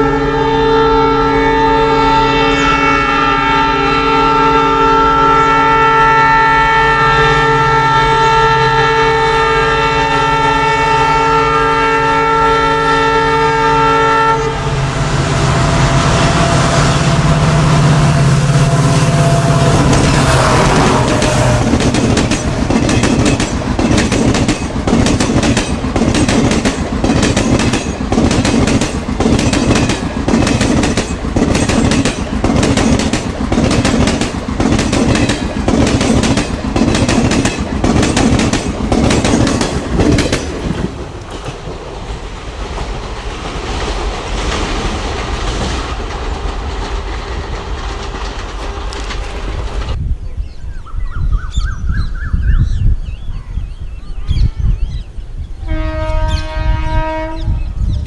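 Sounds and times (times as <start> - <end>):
train wheels clattering over rails: 19.6 - 50.0.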